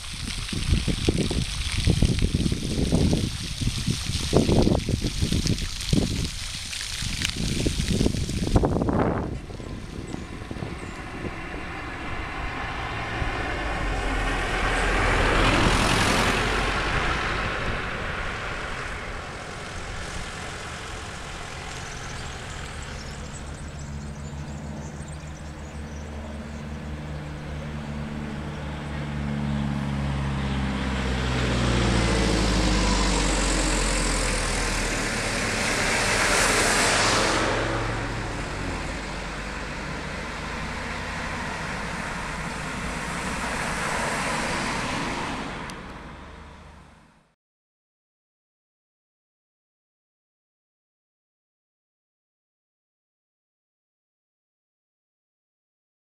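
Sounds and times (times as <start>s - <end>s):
engine approaching: 0.0s - 47.4s
cars passing: 7.4s - 47.3s.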